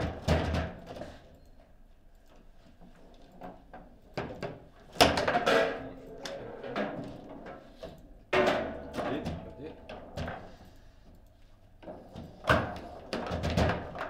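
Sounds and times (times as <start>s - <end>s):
foosball ball and rods clacking: 3.4s - 10.7s, 11.8s - 14.0s.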